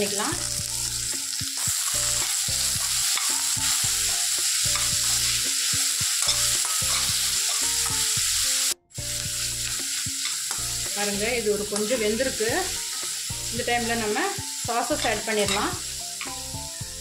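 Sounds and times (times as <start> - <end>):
vegetables sizzling in hot oil: 0.0 - 17.0
steel spoon stirring: 1.5 - 12.0, 12.7 - 14.2, 14.9 - 16.4.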